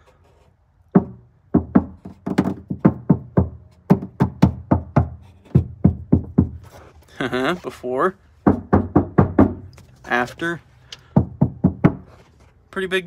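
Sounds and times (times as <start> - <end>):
knuckles knocking on metal panel: 0.9 - 6.6, 8.4 - 9.7, 11.1 - 12.1.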